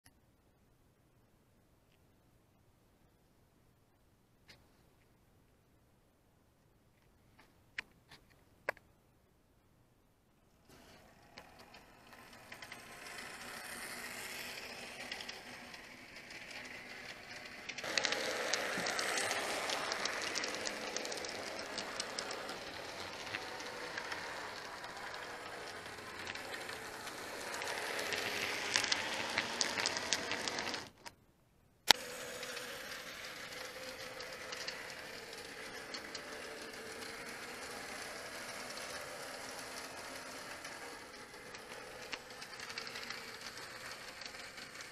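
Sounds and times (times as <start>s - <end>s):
model train wheels rattling on track: 10.7s - 31.1s, 31.9s - 44.9s
small electric motor whirring: 10.7s - 31.1s, 31.9s - 44.9s.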